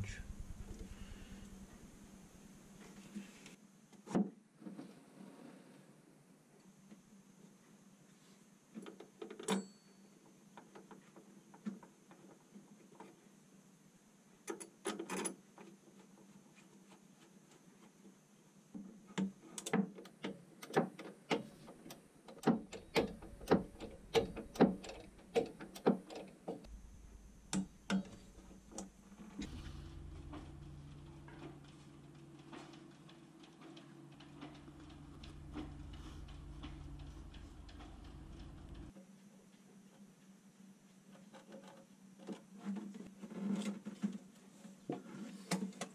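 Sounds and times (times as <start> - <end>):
steady low hum: 0.0 - 3.6, 22.6 - 25.7, 26.4 - 39.5.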